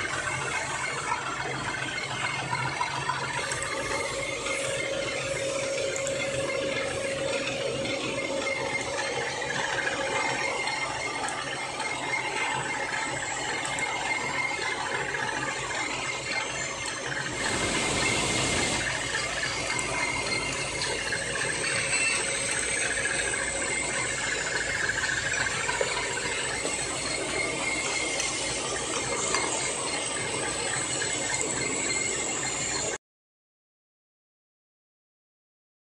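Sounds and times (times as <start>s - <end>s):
milling machine clatter and whine: 0.0s - 33.0s.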